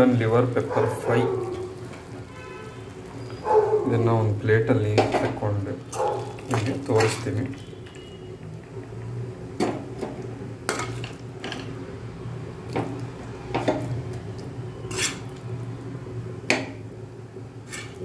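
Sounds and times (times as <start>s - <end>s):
metal spoon scraping a pan: 5.9s - 8.2s, 10.7s - 11.8s, 14.8s - 15.4s, 17.6s - 18.0s.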